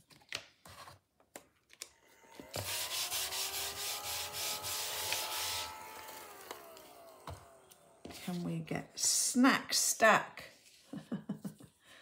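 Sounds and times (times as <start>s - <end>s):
vacuum motor winding down: 1.9s - 8.6s
small vacuum whining: 1.9s - 9.1s.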